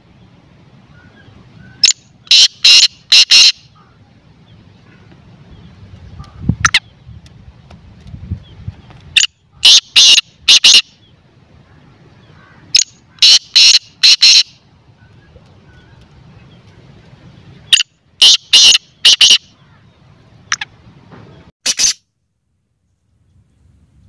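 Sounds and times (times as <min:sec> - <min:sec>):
francolin calling: 0:00.9 - 0:05.1, 0:09.1 - 0:16.7, 0:17.6 - 0:20.8.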